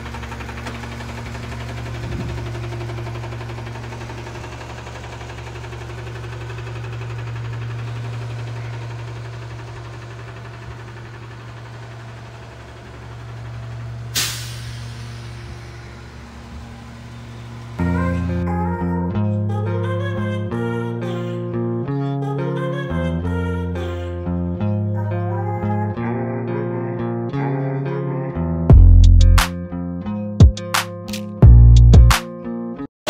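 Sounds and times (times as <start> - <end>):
garbage truck diesel engine: 0.0 - 18.9
air brake hiss: 14.0 - 17.7.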